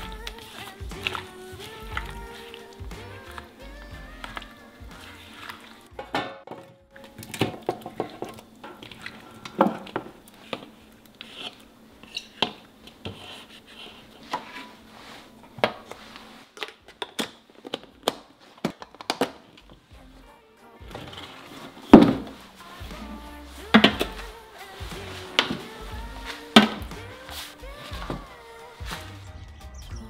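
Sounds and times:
wet squishing of food: 0.0 - 6.0, 7.0 - 11.7.

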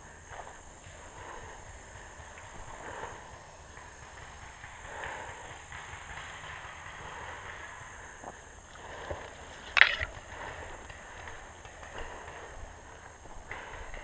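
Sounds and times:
faint clicks: 0.0 - 14.0
rustling movement noise: 7.1 - 13.6.

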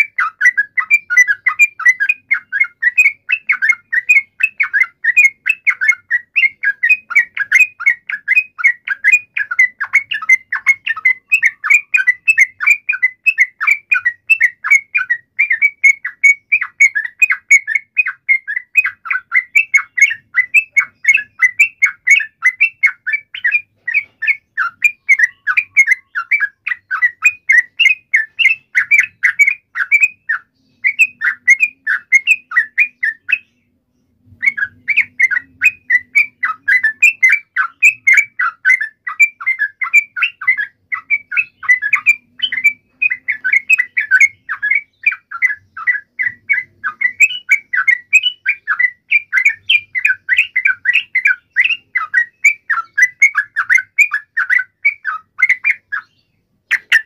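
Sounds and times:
bird chirping song: 0.0 - 57.0.

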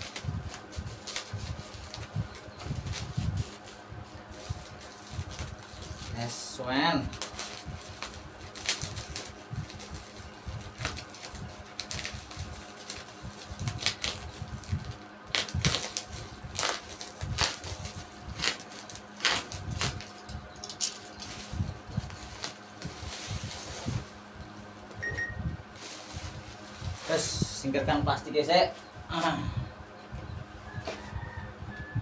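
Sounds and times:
bubble wrap crinkling and snapping: 0.0 - 24.3.

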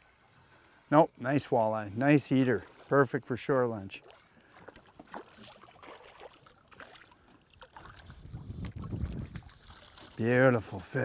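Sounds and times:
small splashes and drips: 3.8 - 10.9
fish splashing at water surface: 4.1 - 10.2
wind rumble on microphone: 7.8 - 10.0.

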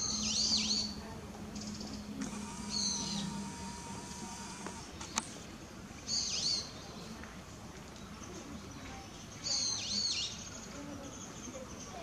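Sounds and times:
bird shrill high call: 0.0 - 1.0
faint outdoor background: 0.0 - 12.0.

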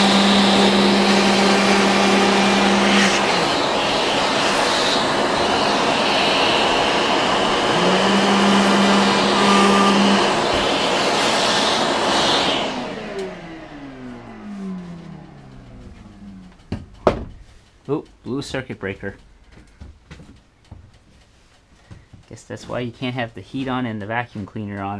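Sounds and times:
router cutting: 0.0 - 16.9
shop vacuum running: 0.0 - 17.5.

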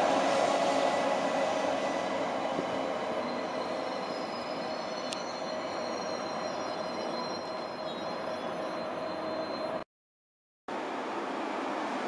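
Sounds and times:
train braking: 0.0 - 9.8
wheel and brake squeal: 2.4 - 9.8.

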